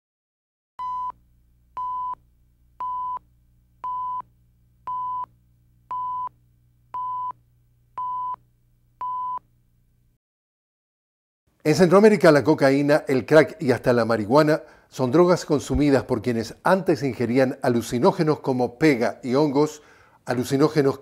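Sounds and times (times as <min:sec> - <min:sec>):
faint low hum: 0:00.8 - 0:10.2.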